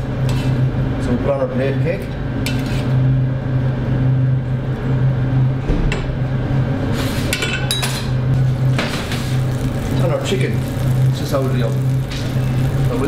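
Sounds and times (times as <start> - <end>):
low hum: 8.0 - 13.0.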